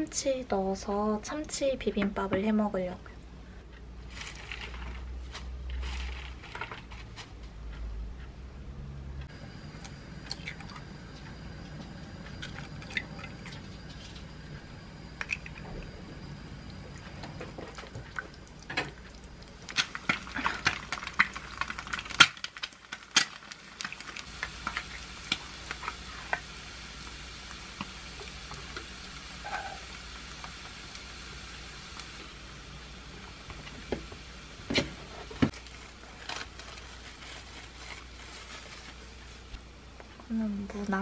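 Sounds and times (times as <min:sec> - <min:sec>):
steady hiss: 0:24.2 - 0:36.0.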